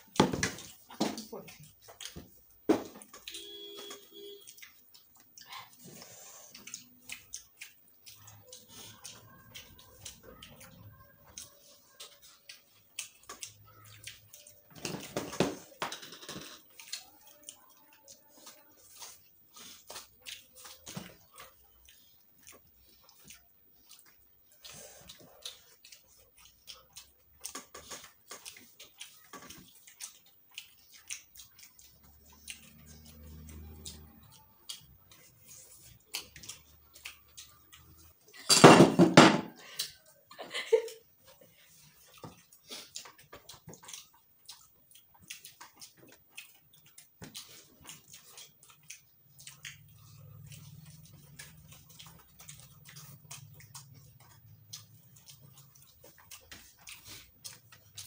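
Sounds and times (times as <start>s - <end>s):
wet chewing and lip smacks: 0.0s - 38.5s, 39.5s - 58.0s.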